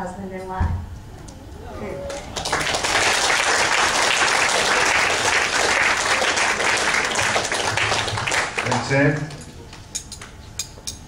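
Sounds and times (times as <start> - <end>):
roomful of people applauding: 2.0 - 9.5.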